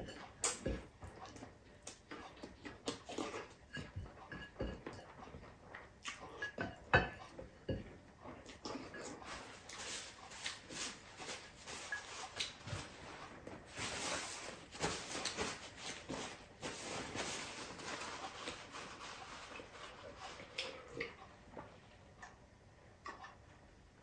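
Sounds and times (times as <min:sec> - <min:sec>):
paper napkin rustling: 0:09.2 - 0:20.6.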